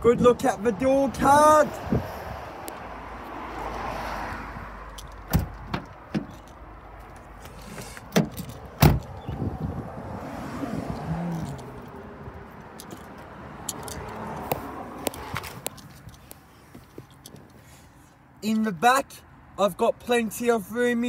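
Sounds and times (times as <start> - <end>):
car door latch clicks: 5.0 - 6.5, 8.0 - 9.4
door handling noise: 5.0 - 6.6, 7.7 - 9.4
car door clunks: 5.2 - 6.5, 7.7 - 9.5
car door shutting: 5.2 - 6.5, 7.6 - 9.5.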